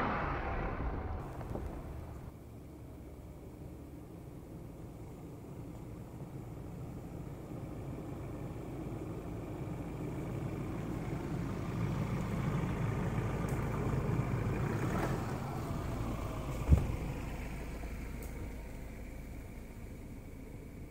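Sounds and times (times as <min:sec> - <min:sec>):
pickup truck engine passing: 0:00.0 - 0:02.4.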